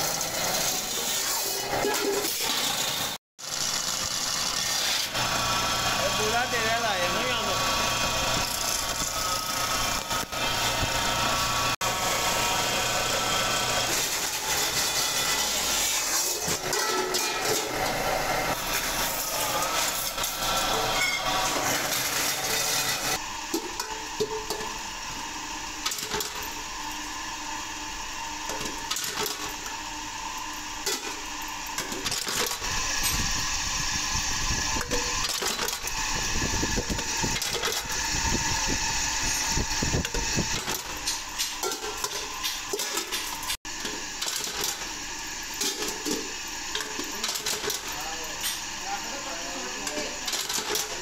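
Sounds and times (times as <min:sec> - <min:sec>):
machinery running: 0:00.0 - 0:25.1.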